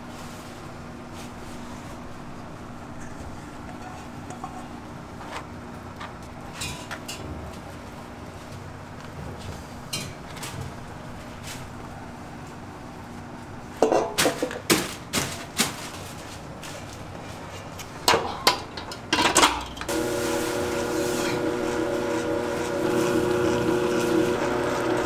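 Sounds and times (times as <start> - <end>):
metal clanks of kitchen tools: 13.8 - 14.6
steady machine hum: 19.8 - 25.0.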